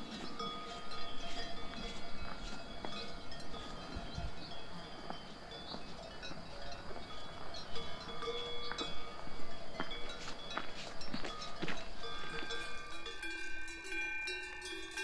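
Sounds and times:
cowbells clanking: 0:00.0 - 0:15.0.

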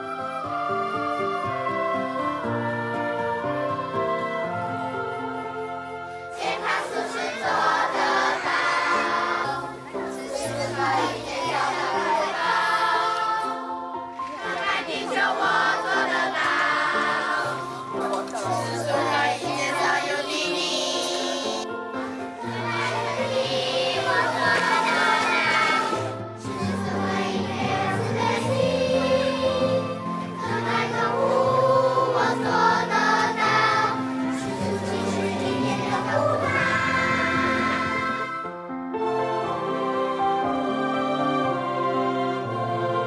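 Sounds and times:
children singing in chorus: 0:06.3 - 0:21.6, 0:22.4 - 0:38.4.

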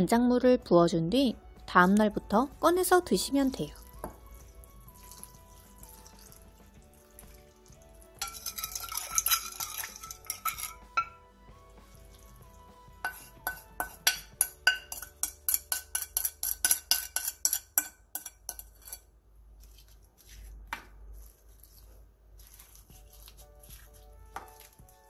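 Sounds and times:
soft background music: 0:00.0 - 0:17.7, 0:20.4 - 0:25.0
liquid pouring into glass container: 0:03.8 - 0:10.7
wooden spoon clinking on ceramic plate: 0:08.2 - 0:11.2, 0:13.1 - 0:19.0.

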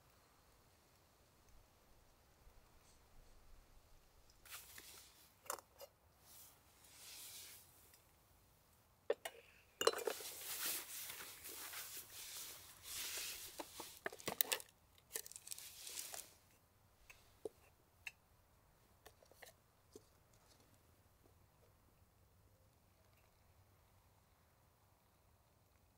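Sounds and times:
packaging tearing and crinkling: 0:15.2 - 0:16.3.

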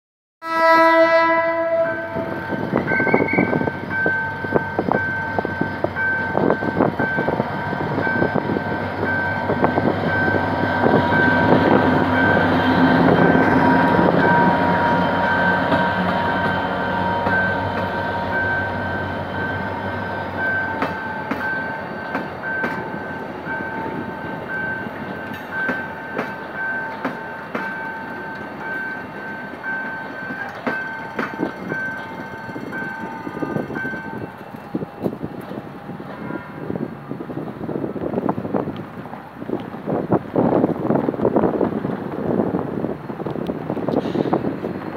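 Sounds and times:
train horn blast: 0:00.4 - 0:03.7, 0:36.0 - 0:36.9
locomotive engine rumbling: 0:01.0 - 0:44.9
train wheels clattering on rails: 0:20.4 - 0:36.3.

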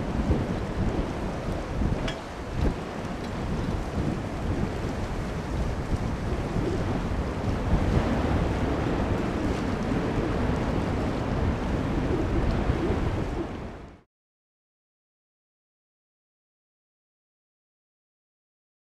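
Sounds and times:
distant jet engines rumbling: 0:00.0 - 0:14.0
wind on microphone: 0:00.0 - 0:14.0.

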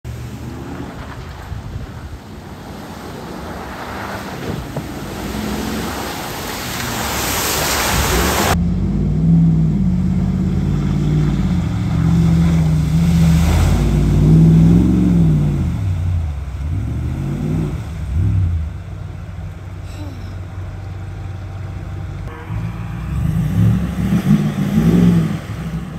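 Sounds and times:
truck engine revving: 0:00.0 - 0:25.9
water spray rushing: 0:00.1 - 0:08.6, 0:11.2 - 0:16.4.

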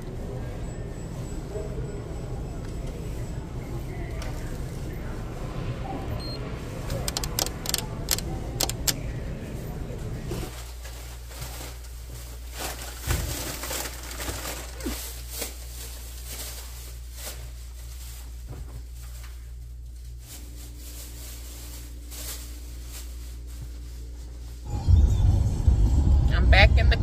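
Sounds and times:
store noise: 0:00.0 - 0:25.0
sharp clicks: 0:06.9 - 0:09.0
plastic bags rustling: 0:10.4 - 0:24.7
steady low hum: 0:18.9 - 0:27.0.

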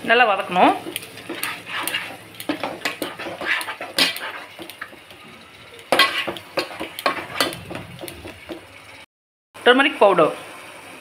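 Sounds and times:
masala sauteing: 0:00.0 - 0:09.1
spatula scraping a pan: 0:00.7 - 0:08.8.

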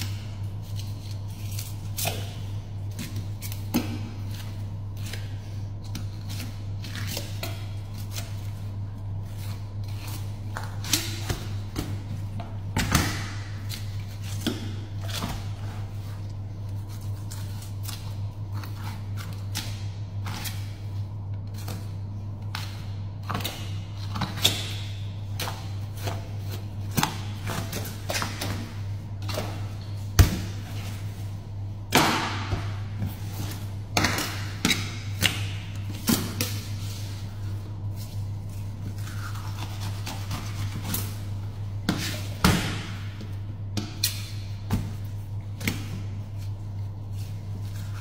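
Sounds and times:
steady low hum: 0:00.0 - 0:48.0
knife scraping and crunching fish: 0:38.5 - 0:41.2.

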